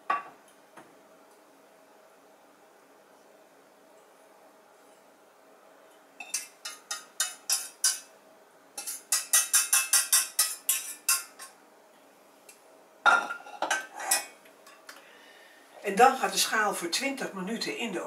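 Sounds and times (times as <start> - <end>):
utensil scraping metal saucepan: 6.2 - 8.1, 8.8 - 11.5, 13.1 - 14.3.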